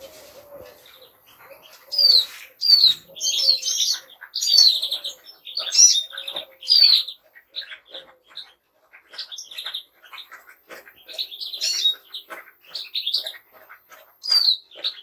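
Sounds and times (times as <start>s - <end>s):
finches twittering and whistling: 0.0s - 8.5s.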